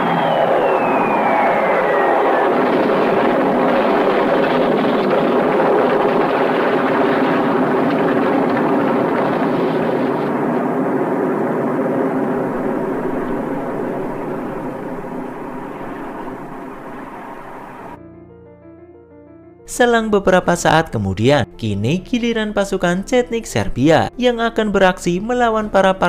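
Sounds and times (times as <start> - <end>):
propeller plane engine droning: 0.0 - 18.0.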